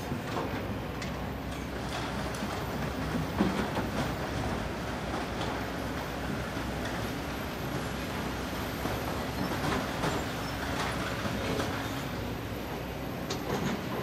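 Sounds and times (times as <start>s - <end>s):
excavator diesel engines running: 0.0s - 14.0s.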